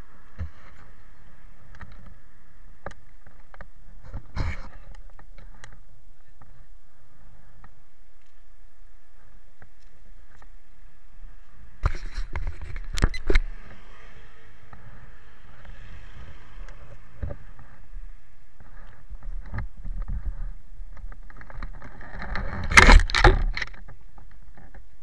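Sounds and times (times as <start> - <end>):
soft footstep-like clicks: 1.6 - 6.7, 7.5 - 10.7.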